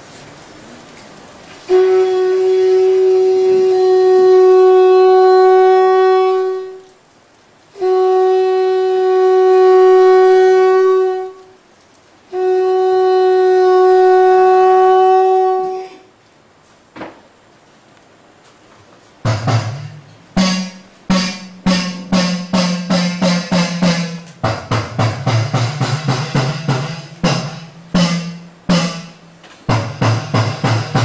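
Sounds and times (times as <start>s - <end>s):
conch shell blasts: 1.7s - 6.8s, 7.8s - 11.5s, 12.3s - 16.1s, 19.3s - 31.0s.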